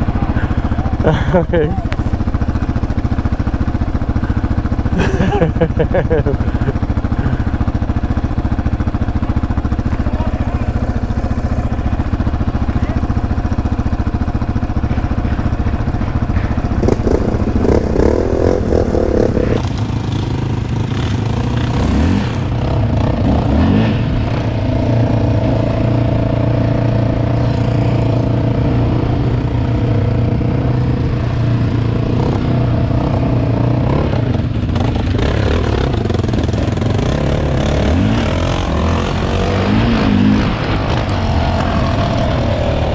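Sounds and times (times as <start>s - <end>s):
atv engine running steadily: 0.0s - 42.9s
quad engine idling and revving: 0.0s - 42.9s.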